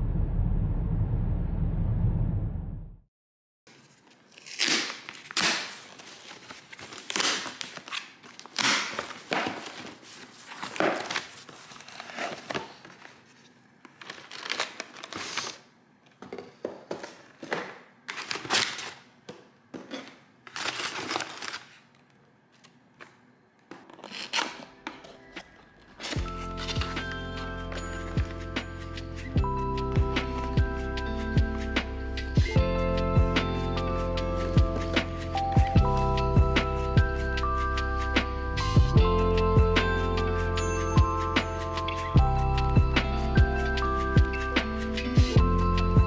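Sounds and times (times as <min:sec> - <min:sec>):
packing paper crinkling: 0:03.7 - 0:15.7, 0:18.1 - 0:19.1, 0:20.4 - 0:22.1, 0:23.8 - 0:27.6.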